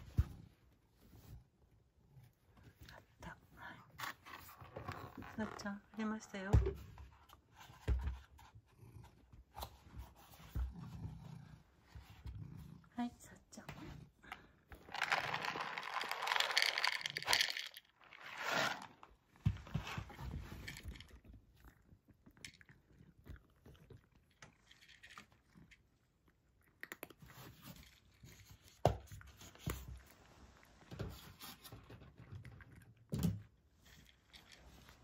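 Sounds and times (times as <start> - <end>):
cat crunching kibble: 14.8 - 19.4, 20.4 - 33.1
kibble rattling into a wooden dish: 14.9 - 18.2.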